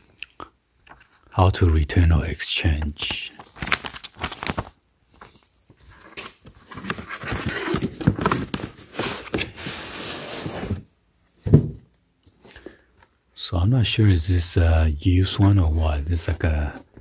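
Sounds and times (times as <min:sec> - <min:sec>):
cardboard box rustling and scraping: 0:06.5 - 0:10.9.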